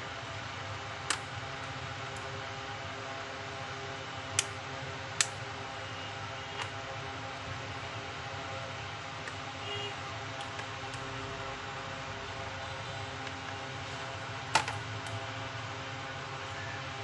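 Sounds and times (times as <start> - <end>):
steady hum: 0.0 - 17.0
sharp plastic clicks: 5.2 - 5.4.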